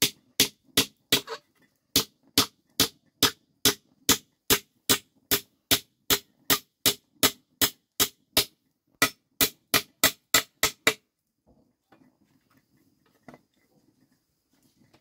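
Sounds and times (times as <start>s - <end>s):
hammer striking nail into wood: 0.0s - 1.3s, 1.9s - 11.0s.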